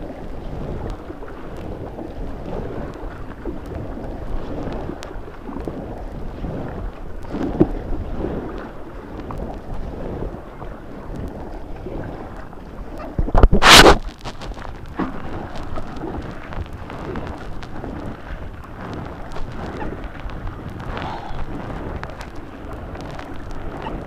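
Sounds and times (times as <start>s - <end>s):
white water rushing and splashing: 0.0s - 24.0s.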